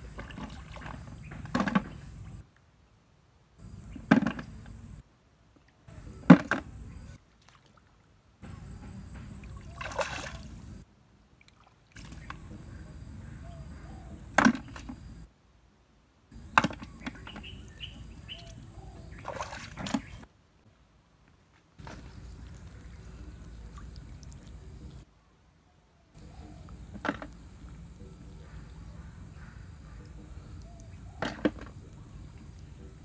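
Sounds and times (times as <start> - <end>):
feet splashing in muddy water: 9.4 - 10.8, 11.5 - 12.5, 18.2 - 20.2, 21.8 - 25.0.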